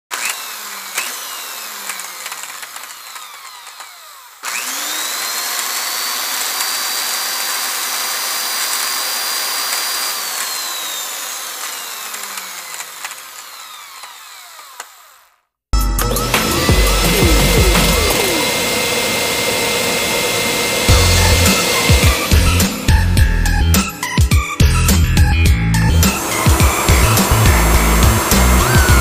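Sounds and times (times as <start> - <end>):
drone propellers buzzing and whining: 15.8 - 29.0.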